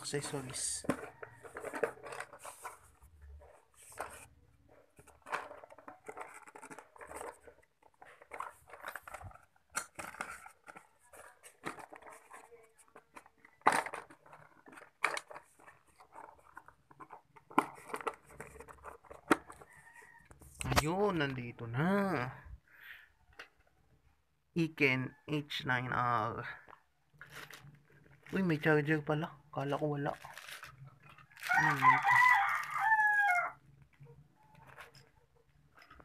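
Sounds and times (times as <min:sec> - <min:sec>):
plastic parts clacking together: 0:00.0 - 0:21.0, 0:33.7 - 0:36.0
packaging rustling: 0:00.0 - 0:21.3, 0:26.7 - 0:28.7, 0:29.7 - 0:36.0
plastic parts clicking: 0:04.9 - 0:20.9.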